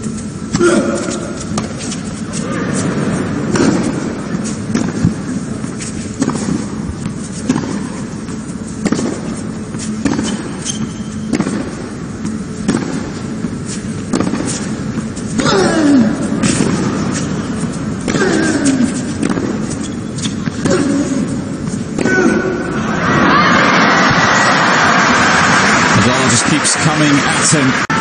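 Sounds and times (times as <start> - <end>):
tennis ball hit by rackets: 2.8 - 15.6, 16.2 - 22.8.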